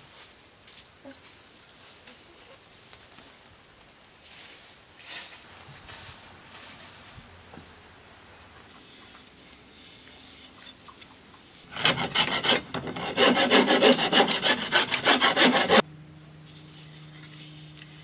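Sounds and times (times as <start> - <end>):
hand rasp scraping wood: 11.7 - 15.8.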